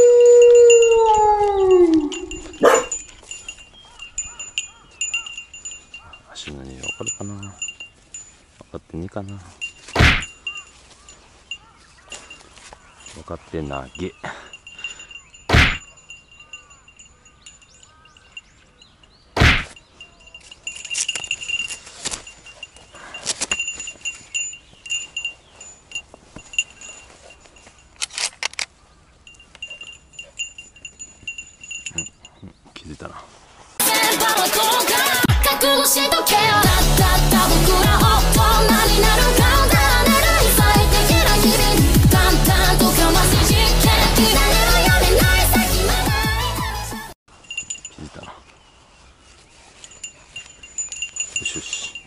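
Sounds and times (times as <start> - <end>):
dog whining: 0.0 - 3.0
faint bell-like tinkling: 0.1 - 28.0, 29.2 - 32.6, 47.3 - 52.0
loud thump: 15.5 - 15.8.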